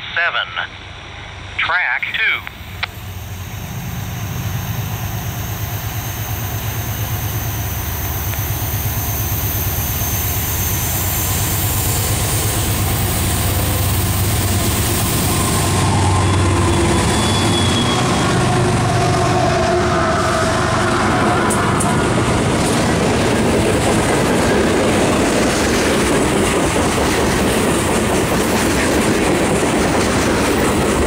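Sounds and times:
diesel locomotive engine rumble: 0.0s - 31.0s.

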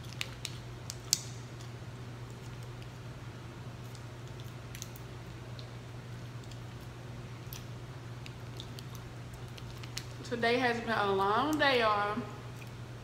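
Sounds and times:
chewing clicks and smacks: 0.0s - 3.0s, 3.8s - 10.2s
steady low hum: 0.0s - 13.0s.

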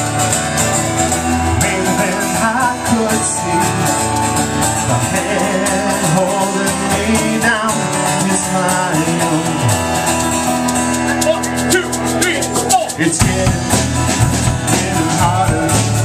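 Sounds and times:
live band playing: 0.0s - 16.0s
drum kit and cymbals beat: 9.5s - 16.0s.

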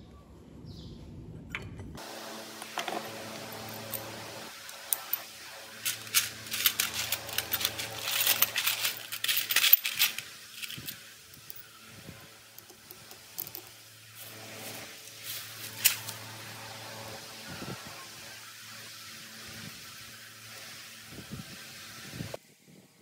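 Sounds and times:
metal parts rattling in a tin: 2.8s - 11.7s, 12.6s - 14.3s
plastic bag rustling: 4.8s - 11.2s.

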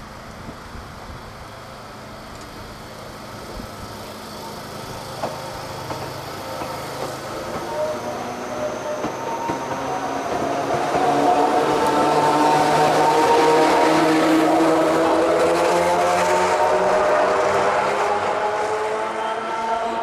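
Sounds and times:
electric train motor whine: 0.0s - 20.0s
wheels clicking on track: 2.2s - 18.0s.

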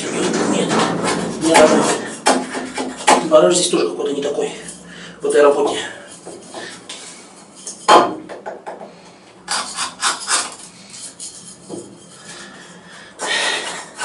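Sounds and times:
knife scraping wood: 9.5s - 12.8s.

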